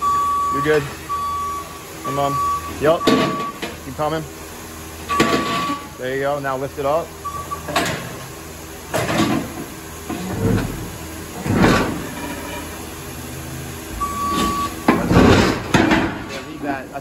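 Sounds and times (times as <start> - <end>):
forklift motor hum: 0.0 - 17.0
steel plate scraping and clanking: 11.6 - 12.8
short beep: 14.0 - 14.8.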